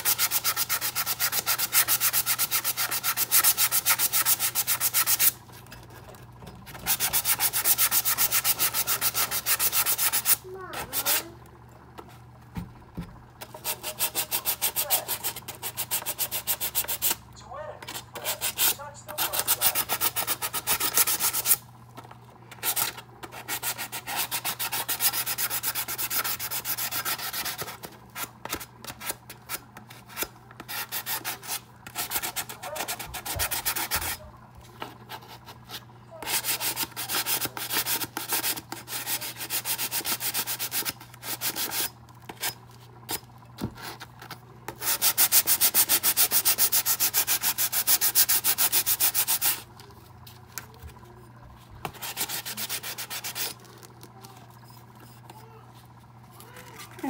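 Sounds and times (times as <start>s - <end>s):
sandpaper scratching strokes: 0.0s - 5.4s, 6.9s - 11.2s, 13.5s - 17.2s, 18.2s - 21.6s, 44.8s - 49.6s, 52.0s - 53.6s.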